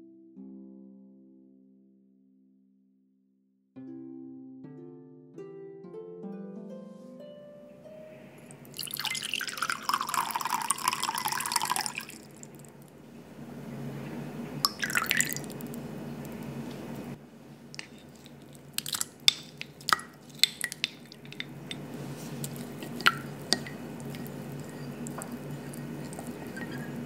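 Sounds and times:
plucked musical notes: 3.8s - 8.8s
liquid trickling into water: 8.4s - 12.9s, 14.6s - 16.5s, 17.7s - 27.0s
water pouring into glass bowl: 8.5s - 12.8s, 14.6s - 16.4s, 17.8s - 27.0s.

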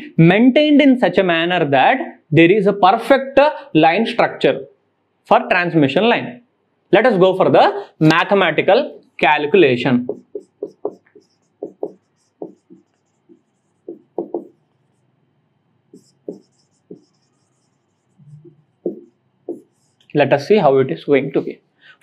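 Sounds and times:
marker squeaking on whiteboard: 10.0s - 15.1s, 15.9s - 20.2s.

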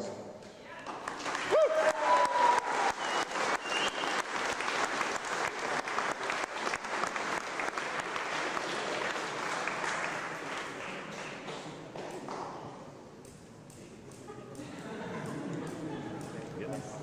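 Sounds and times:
audience applauding: 0.8s - 12.6s.

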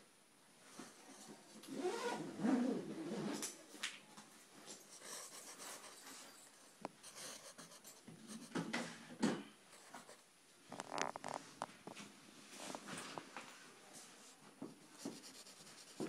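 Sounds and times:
pencil scratching on paper: 4.8s - 8.7s, 9.8s - 10.2s, 14.9s - 16.0s.

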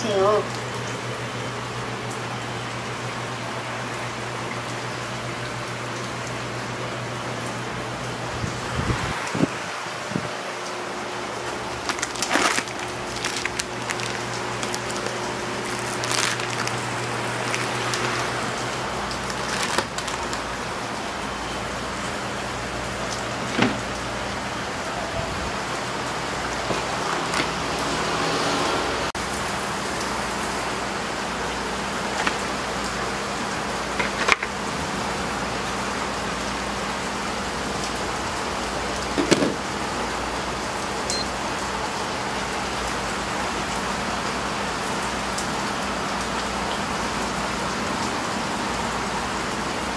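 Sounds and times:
noodle packet crinkling: 11.4s - 20.8s.

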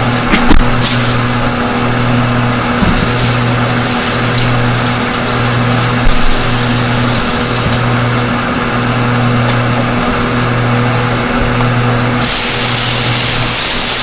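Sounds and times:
exhaust fan running: 0.0s - 14.0s
bright hiss: 12.2s - 14.0s.

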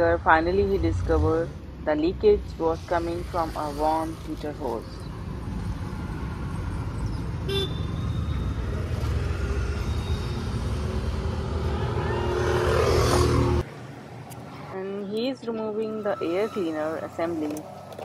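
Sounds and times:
road traffic rumble: 0.0s - 18.0s
car horn toot: 7.4s - 8.4s.

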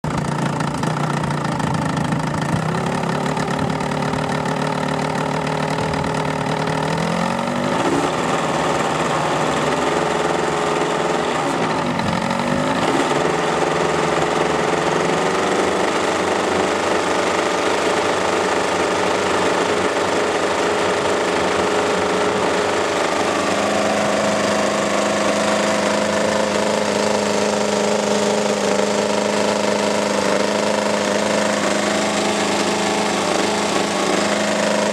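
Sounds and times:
model aircraft engine running: 0.0s - 34.9s.

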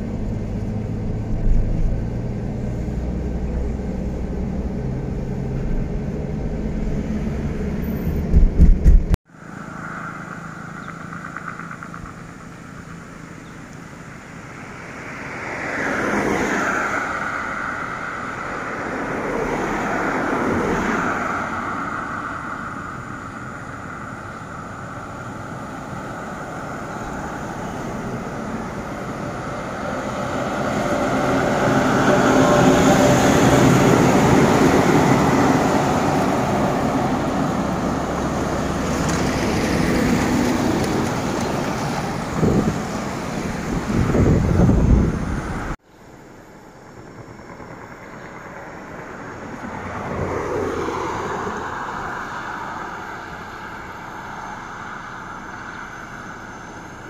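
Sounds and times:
light passing traffic: 0.0s - 57.0s
road noise: 0.0s - 57.0s
heavy truck passing: 14.7s - 45.8s.

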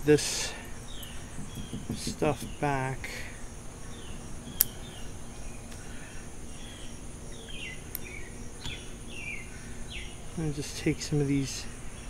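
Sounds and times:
high insect trill: 0.0s - 12.0s
falling bird chirps: 0.5s - 10.8s.

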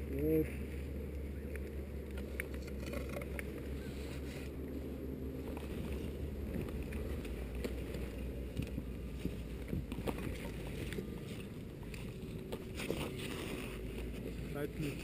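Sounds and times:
climbing gear clicks and scrapes: 2.1s - 4.5s, 5.4s - 15.0s.

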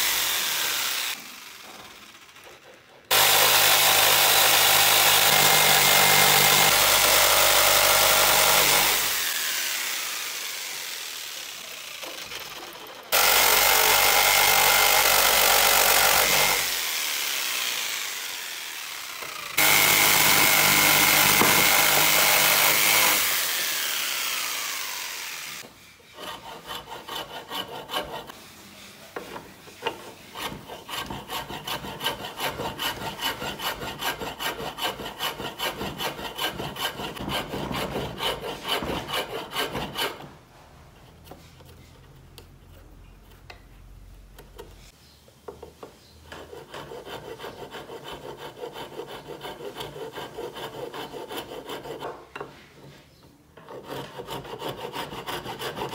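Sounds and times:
jigsaw cutting wood: 0.0s - 25.7s
rasp filing wood: 2.4s - 40.4s, 46.3s - 52.9s, 53.6s - 55.9s.

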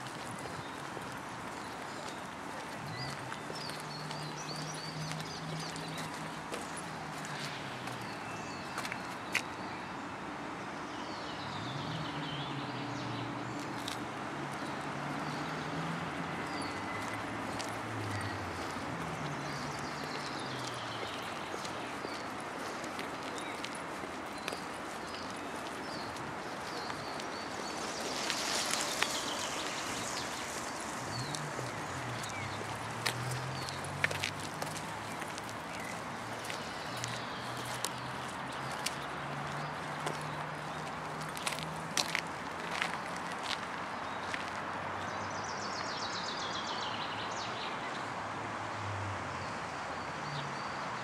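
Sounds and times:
wind in leaves: 0.0s - 51.0s
vehicle engine hum: 26.2s - 43.3s.

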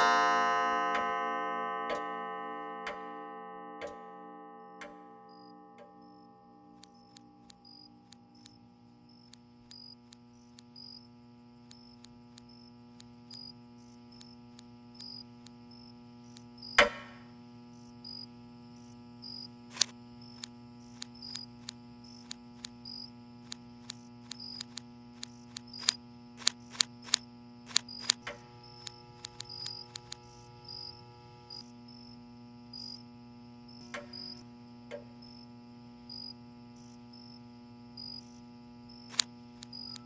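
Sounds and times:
electric hum drone: 0.0s - 40.0s
typewriter keystrokes: 25.5s - 28.4s.

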